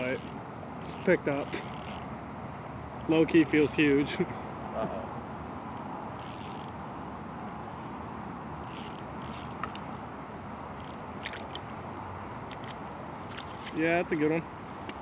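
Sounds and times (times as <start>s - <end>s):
fishing reel clicking: 0.0s - 2.1s, 3.4s - 3.8s, 6.2s - 6.7s, 8.6s - 10.1s, 10.8s - 11.0s.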